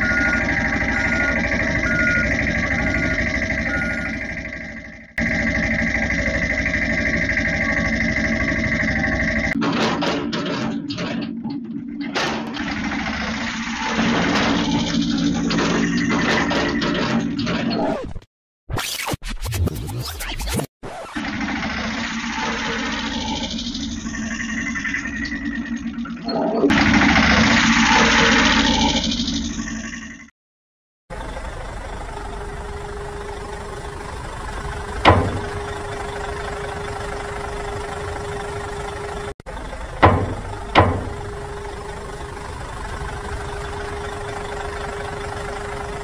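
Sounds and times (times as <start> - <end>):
tractor engine chugging: 0.0 - 9.6, 31.1 - 46.0.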